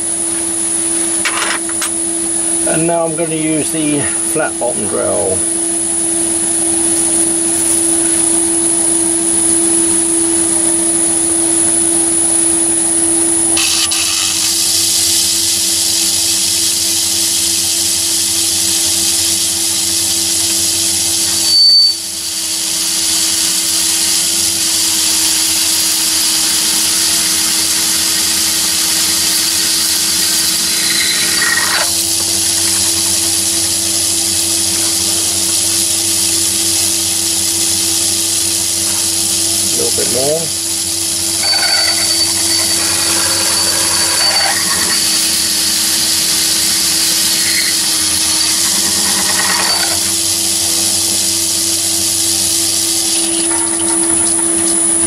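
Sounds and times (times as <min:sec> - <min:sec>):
drill boring into metal: 0:13.4 - 0:35.1, 0:39.7 - 0:55.0
lathe humming: 0:17.9 - 0:53.8
high squeal: 0:21.2 - 0:24.1, 0:25.1 - 0:33.0, 0:39.8 - 0:50.9.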